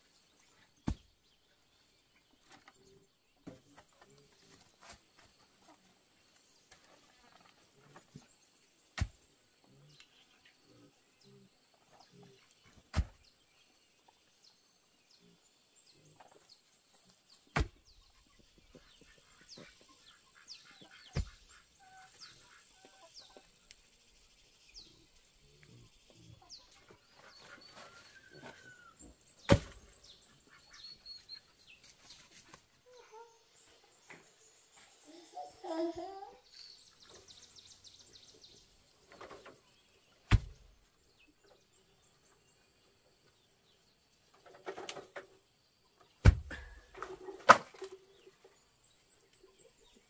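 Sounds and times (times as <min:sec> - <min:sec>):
small birds chirping: 0:00.0 - 0:50.0
chickens clucking: 0:18.1 - 0:23.8, 0:43.7 - 0:50.0.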